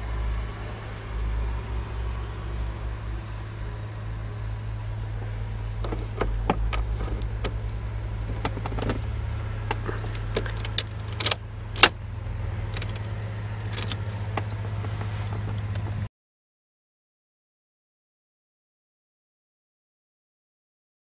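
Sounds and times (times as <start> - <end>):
steady low hum: 0.0 - 16.1
metallic clicks and rattles of key: 12.8 - 14.6.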